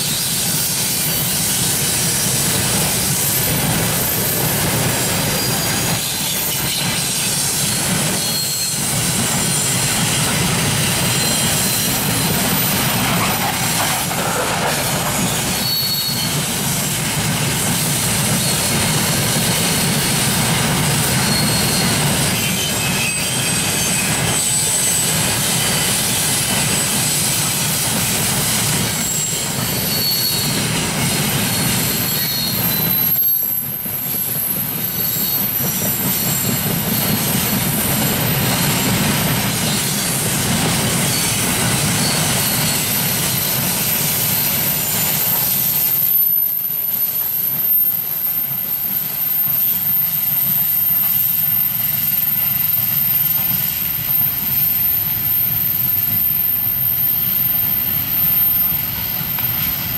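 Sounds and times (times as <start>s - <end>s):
rumble of train wheels: 0.0s - 59.9s
high-pitched wheel squeal: 3.2s - 10.2s, 10.8s - 13.5s, 15.1s - 16.6s, 20.8s - 25.8s, 28.8s - 40.1s, 40.9s - 59.9s.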